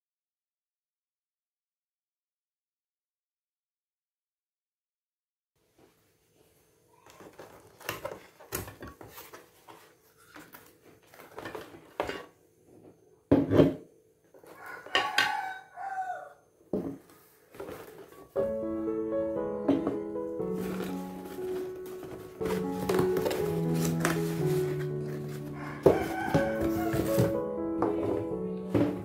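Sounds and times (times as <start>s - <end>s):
cardboard rustling: 7.1s - 12.0s, 17.3s - 18.4s, 20.4s - 29.0s
background music: 18.3s - 29.0s.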